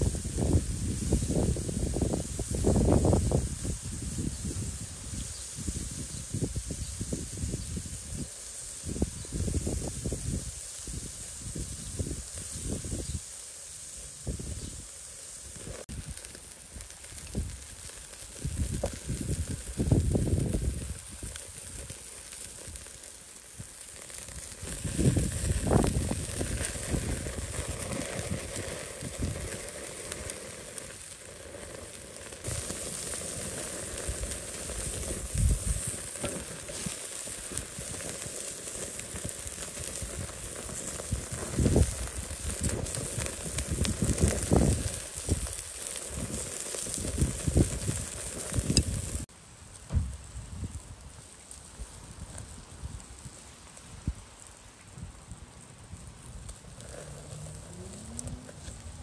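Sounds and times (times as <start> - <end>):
fat crackling on coals: 0.0 - 59.0
meat sizzling on charcoal grill: 0.0 - 59.0
low rumbles: 56.5 - 59.0.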